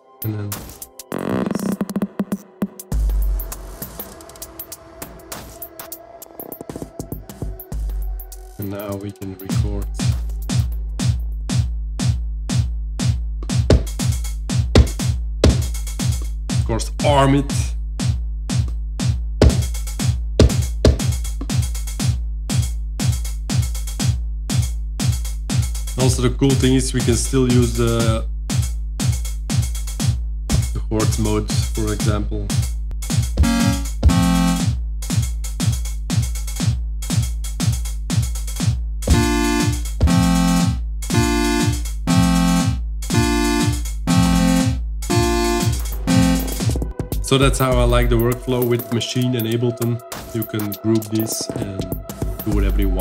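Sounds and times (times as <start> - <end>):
drum machine beat: 6.4 - 53.0
sustained synth chords: 33.4 - 34.8, 39.1 - 47.5
held low bass note: 39.1 - 48.7.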